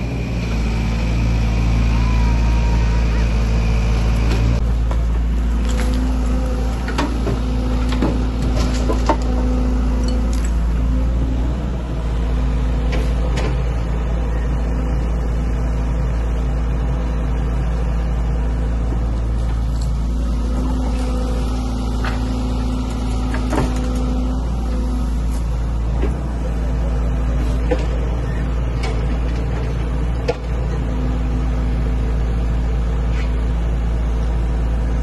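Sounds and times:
excavator diesel engine running: 0:00.0 - 0:35.0.

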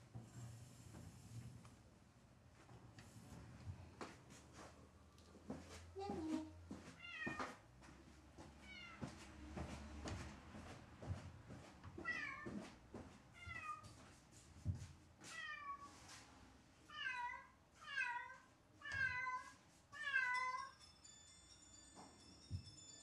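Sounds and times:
cat meowing: 0:16.9 - 0:20.6.

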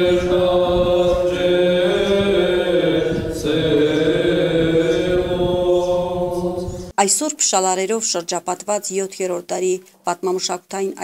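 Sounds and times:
voices singing liturgical chant: 0:00.0 - 0:07.0.

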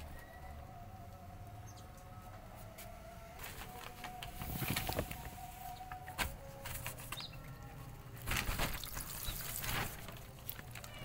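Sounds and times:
cats crunching dry kibble: 0:08.1 - 0:11.0.

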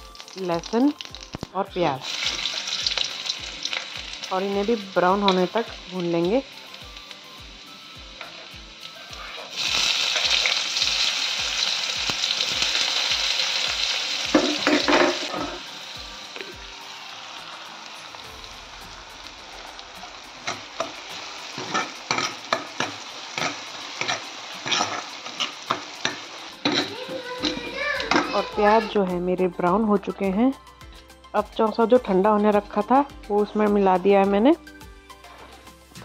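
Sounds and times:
onion sizzling in hot oil: 0:00.0 - 0:29.1
metal ladle scraping iron pan: 0:20.4 - 0:28.4.

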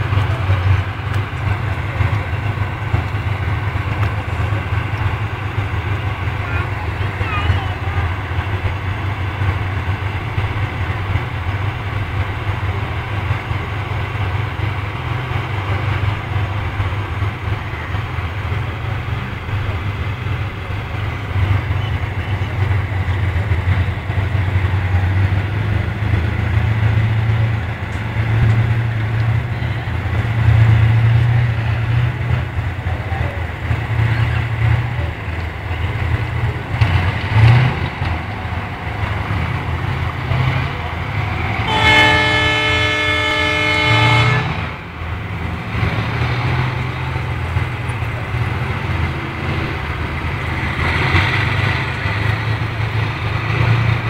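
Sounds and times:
tank diesel engines droning: 0:00.0 - 0:54.0.

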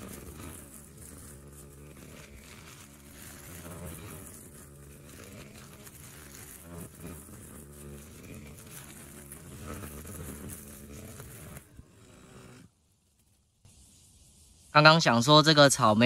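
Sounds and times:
distant string trimmer engine: 0:00.0 - 0:12.7.

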